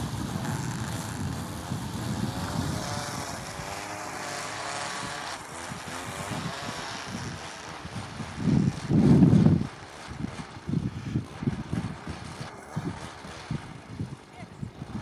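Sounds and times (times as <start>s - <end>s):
lure machine motor running: 0.0s - 15.0s.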